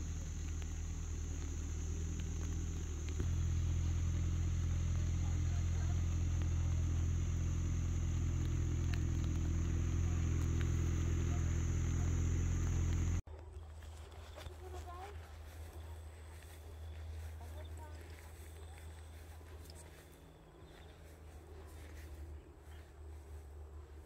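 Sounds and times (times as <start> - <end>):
engine humming: 0.0 - 13.2
high-pitched hiss: 0.0 - 13.2.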